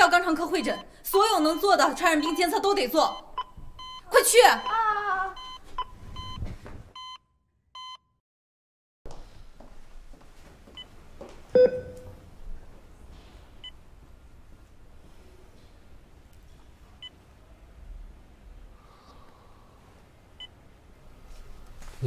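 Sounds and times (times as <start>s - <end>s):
patient monitor beeping: 0.0s - 6.4s, 11.6s - 12.2s
faint room noise: 9.1s - 22.0s.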